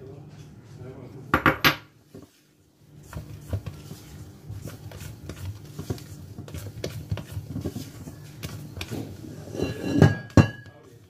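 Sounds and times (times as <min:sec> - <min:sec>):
spatula scraping steel bowl: 0:04.7 - 0:10.2.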